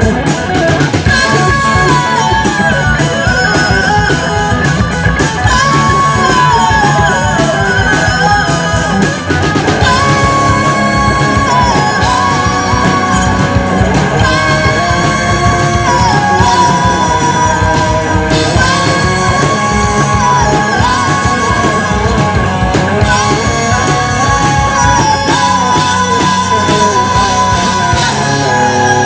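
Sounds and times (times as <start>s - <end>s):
drum and cymbal hits: 0.0s - 29.0s
electric guitars: 0.0s - 29.0s
woman singing: 1.0s - 29.0s.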